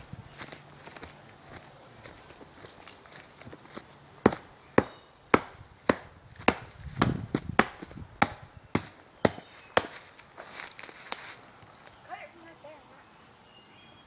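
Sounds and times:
axe chopping tree: 4.2s - 10.1s.

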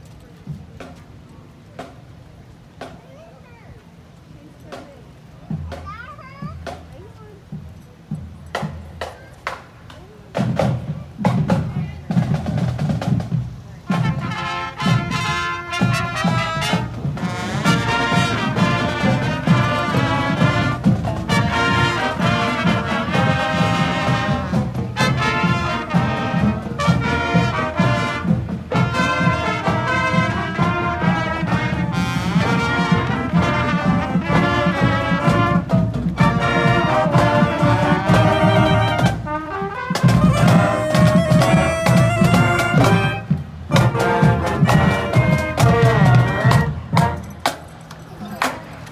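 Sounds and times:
snare and bass drums: 0.0s - 3.2s, 4.6s - 47.8s
marching band brass playing: 10.3s - 47.8s.

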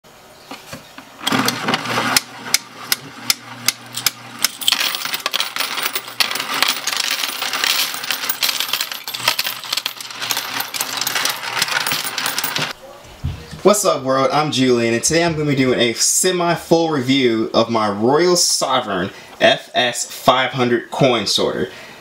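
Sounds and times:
coin sorter motor hum: 1.2s - 12.8s
coins clinking and jingling: 3.9s - 12.8s.

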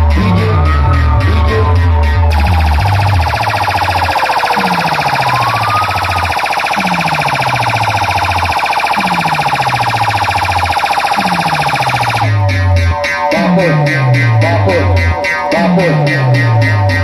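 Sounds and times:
deep bass sweep: 0.0s - 3.4s, 12.2s - 17.0s
distorted guitar music: 1.7s - 10.3s
warbling siren tone: 2.3s - 12.5s.

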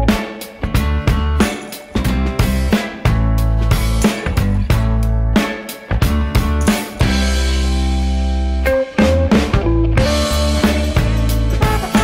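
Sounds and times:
held instrumental chord: 10.0s - 12.0s.

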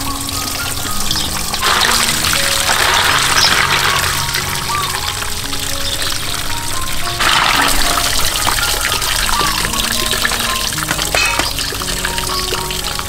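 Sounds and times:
slow background music: 0.0s - 13.0s
water splashing into metal bowl: 1.0s - 5.5s, 7.1s - 12.9s.

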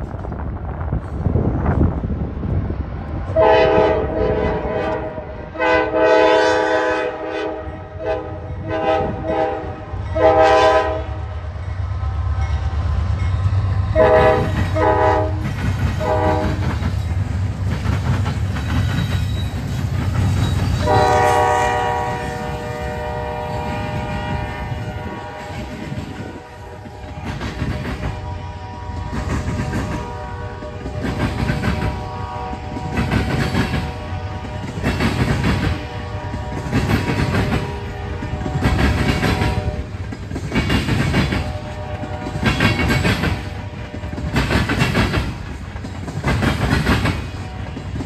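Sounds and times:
freight train rolling past: 0.0s - 48.0s
locomotive air horn: 3.4s - 11.3s, 13.9s - 16.6s, 20.8s - 34.8s, 35.7s - 40.0s, 41.4s - 42.6s.

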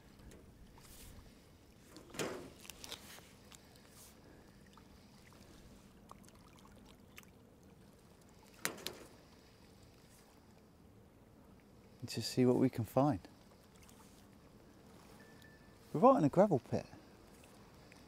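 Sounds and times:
waves lapping against a wall: 0.0s - 10.8s
faint steady hum: 0.0s - 18.0s
water splashes: 0.6s - 10.7s.

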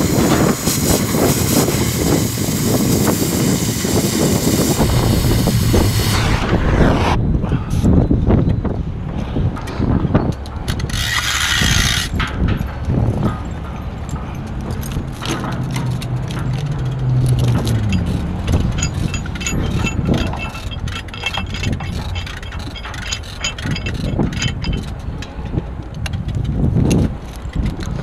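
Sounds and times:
engine running low: 0.0s - 10.8s, 12.0s - 28.0s
steel chain clinking: 10.8s - 25.6s.

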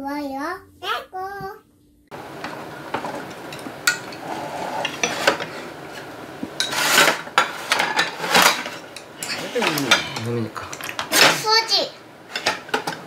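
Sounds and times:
chopsticks clinking against bowls: 2.4s - 11.2s.

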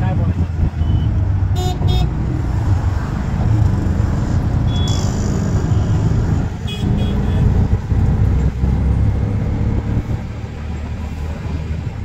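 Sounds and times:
low rumble of moving vehicle: 0.0s - 12.0s
vehicle horn beeps: 0.8s - 2.1s, 4.7s - 6.0s, 6.6s - 7.5s.

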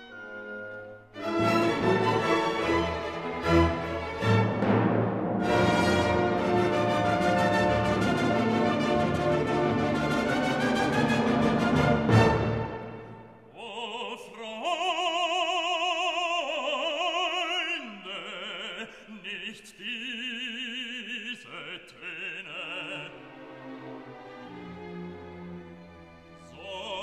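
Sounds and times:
man singing gospel: 13.5s - 23.2s, 26.5s - 27.0s.

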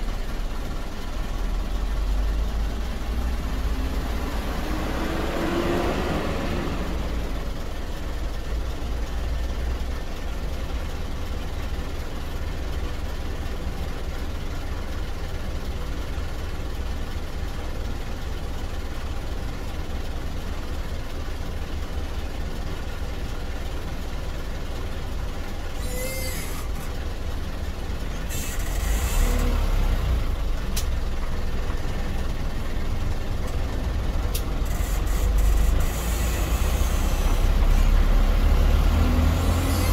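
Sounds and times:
low rumble of traffic engines: 0.0s - 39.9s
short squeal: 25.7s - 27.0s, 28.2s - 29.6s, 34.7s - 38.1s, 39.4s - 39.9s.

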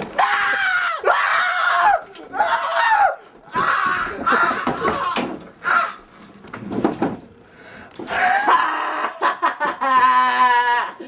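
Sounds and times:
boy grunting and gasping: 8.1s - 9.0s.

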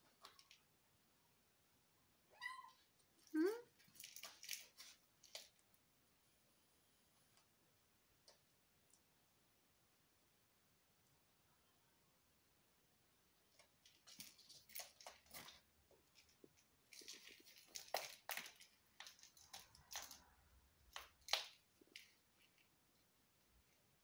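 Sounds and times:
kitten playing with toy: 3.3s - 5.6s, 13.8s - 22.7s.

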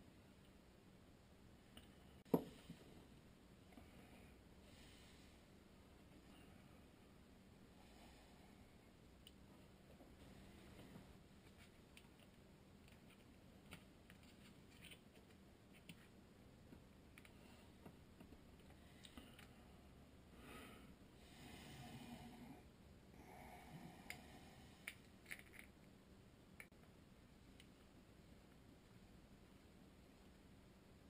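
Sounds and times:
soft rustle: 9.5s - 19.6s.

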